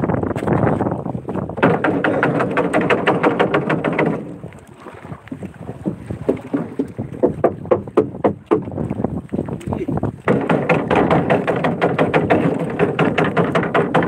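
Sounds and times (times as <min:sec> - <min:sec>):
net scraping and knocking: 0:10.2 - 0:14.0.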